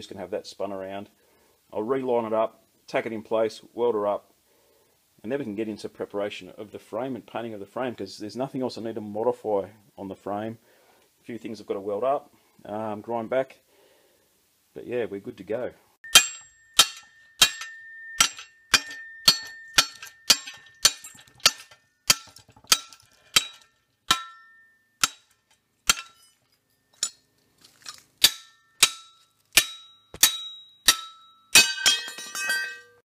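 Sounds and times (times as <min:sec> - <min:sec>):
hammer striking steel plate: 0:16.0 - 0:26.4, 0:28.2 - 0:33.0.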